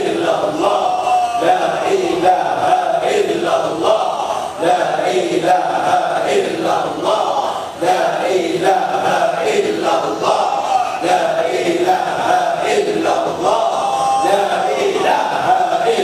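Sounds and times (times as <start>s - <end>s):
men chanting together: 0.0s - 16.0s.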